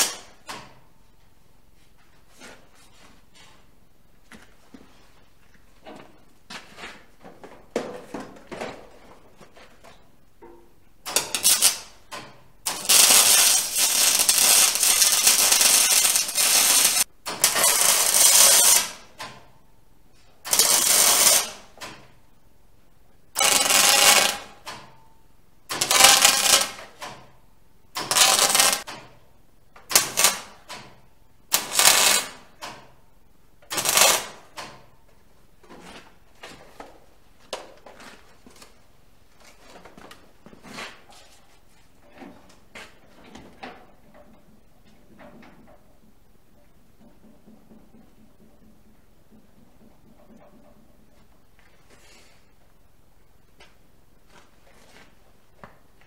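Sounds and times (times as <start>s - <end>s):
arc welding hiss: 11.2s - 11.9s, 12.7s - 19.0s, 20.5s - 21.6s, 28.0s - 28.8s, 31.5s - 32.4s, 33.7s - 34.3s.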